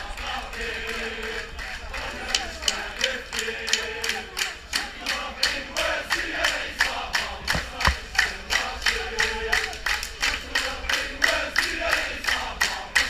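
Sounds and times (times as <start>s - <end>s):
crowd chanting in unison: 0.0s - 13.0s
rhythmic clapping: 0.1s - 13.0s
dull knocks: 7.4s - 8.0s.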